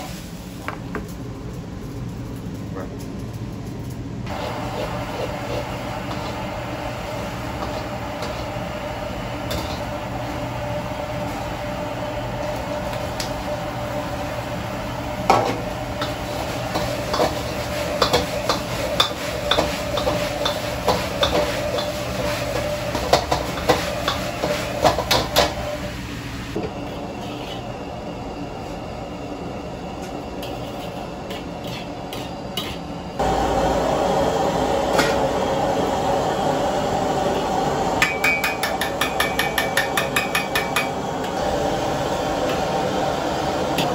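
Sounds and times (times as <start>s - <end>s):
gas burner roaring: 0.0s - 43.9s
metal ladle scraping wok: 26.8s - 27.6s, 30.4s - 32.8s.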